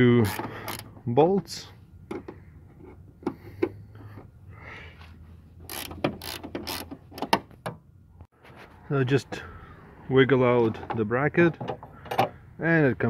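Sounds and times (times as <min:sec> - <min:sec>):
ratcheting wrench clicking: 0:00.2 - 0:00.9, 0:05.7 - 0:07.3.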